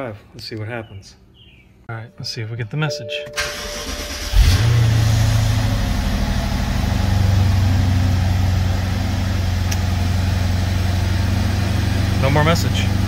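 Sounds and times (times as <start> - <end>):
car engine starting and idling: 3.2 - 13.0.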